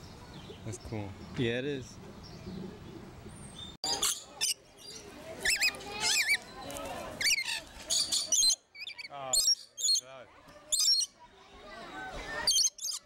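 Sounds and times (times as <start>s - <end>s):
lorikeets screeching and chattering: 3.8s - 6.5s, 7.2s - 10.1s, 10.7s - 11.2s, 12.4s - 13.0s.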